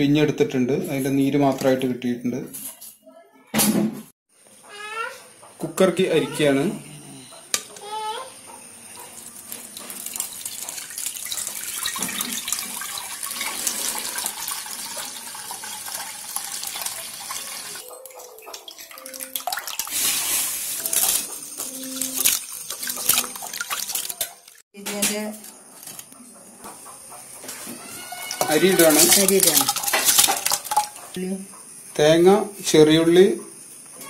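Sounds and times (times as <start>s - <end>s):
juice pouring through strainer: 9.2s - 17.8s, 19.2s - 24.6s, 28.2s - 31.1s
rice splashing in water: 9.4s - 17.4s, 19.1s - 24.6s, 28.4s - 31.0s.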